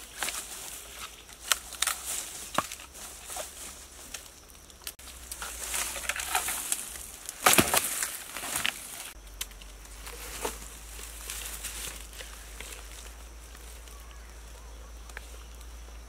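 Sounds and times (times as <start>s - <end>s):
rotten wood crackling and snapping: 0.0s - 16.0s.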